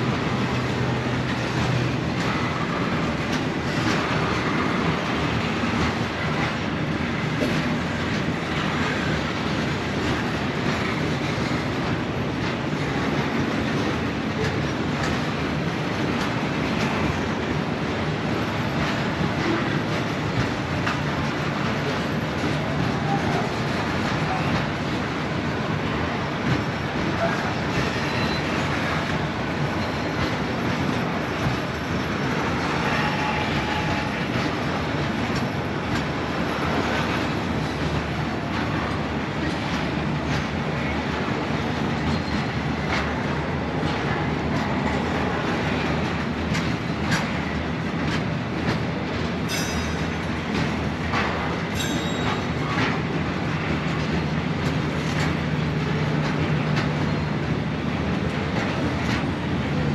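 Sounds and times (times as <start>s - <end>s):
train wagons rumbling on rails: 0.0s - 59.9s
wheels clicking over rail joints: 0.1s - 59.9s
high wheel squeals: 27.2s - 29.0s, 32.5s - 34.4s.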